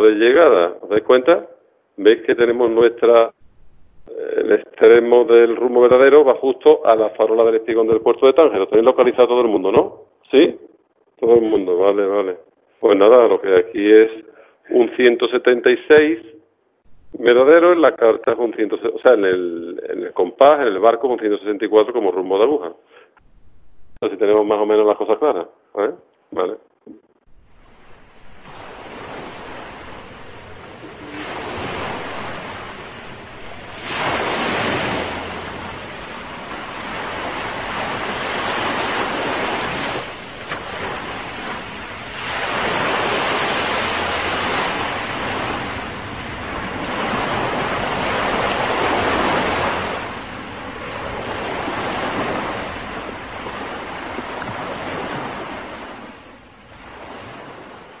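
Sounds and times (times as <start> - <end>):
sea waves washing in and out: 3.0 - 9.4, 16.8 - 17.8, 23.2 - 24.0, 26.9 - 58.0.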